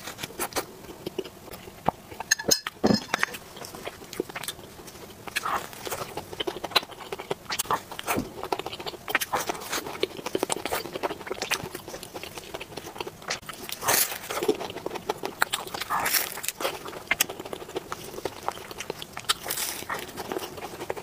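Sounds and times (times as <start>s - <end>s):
chewing: 0.0s - 21.0s
flaky pastry crackling: 3.1s - 21.0s
crunchy bite: 5.2s - 21.0s.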